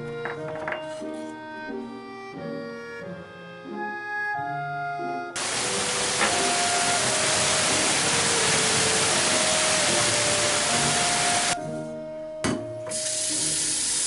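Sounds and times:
heavy rain pouring: 5.4s - 11.6s.

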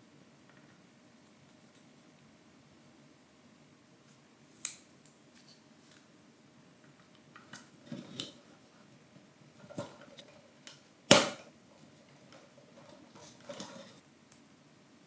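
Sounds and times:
sharp wooden crack: 11.1s - 11.5s.

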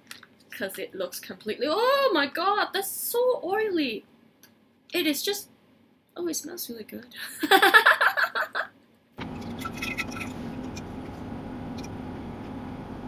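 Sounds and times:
steady low hum: 9.2s - 13.0s.

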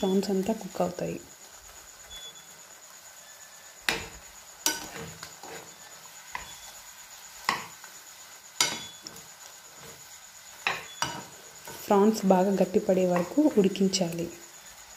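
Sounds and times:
faint sizzle from pan: 0.0s - 14.9s
metal spoon clinking on frying pan: 4.6s - 5.0s, 8.6s - 9.1s, 10.6s - 11.3s.

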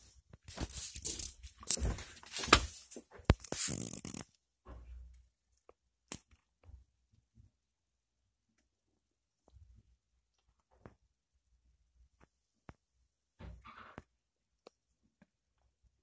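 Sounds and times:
close rustling and scraping: 0.0s - 4.2s.

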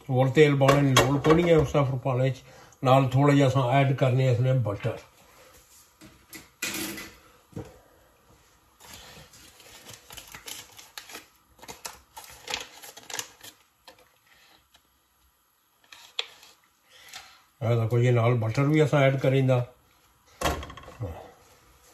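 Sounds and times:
foil wrapper crinkling: 8.8s - 14.9s.

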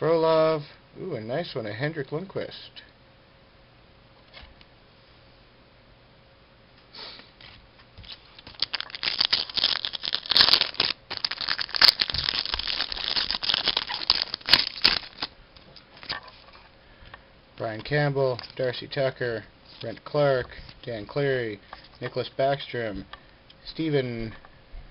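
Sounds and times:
cards rustling: 7.4s - 16.7s
foil wrapper crinkling and tearing: 8.0s - 15.3s.

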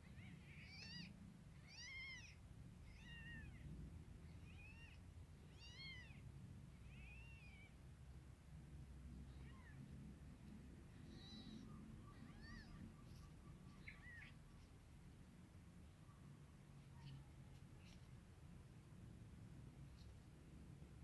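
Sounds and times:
kittens mewing: 0.0s - 6.2s, 6.8s - 7.8s, 9.2s - 9.9s, 10.9s - 13.2s, 13.8s - 14.4s.

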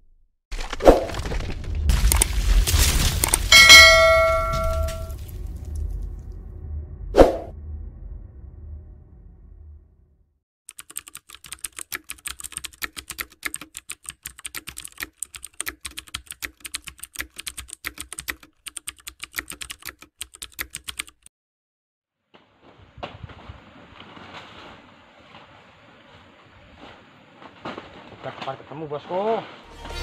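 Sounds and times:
keyboard typing clicks: 10.7s - 21.3s.

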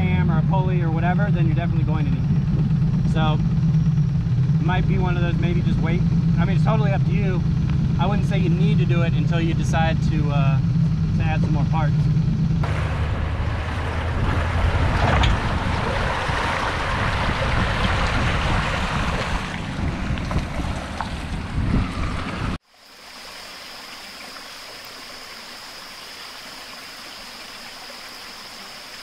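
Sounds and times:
high-pitched whine: 0.0s - 15.8s
rushing wind and water: 12.6s - 29.0s.

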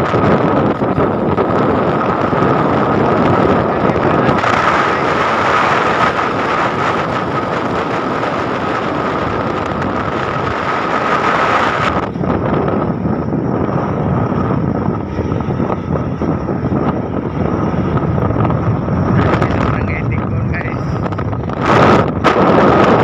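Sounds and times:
wind on microphone: 0.0s - 23.0s.

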